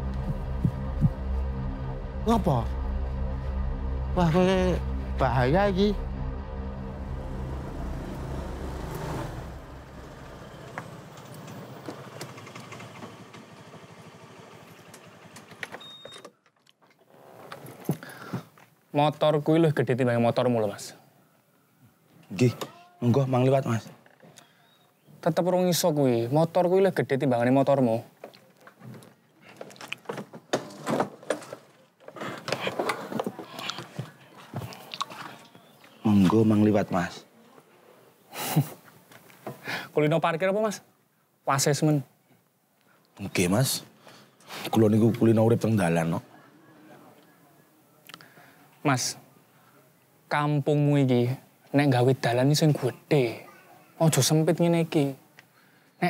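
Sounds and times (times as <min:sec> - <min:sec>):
motor scooter engine running: 0:08.3 - 0:15.7.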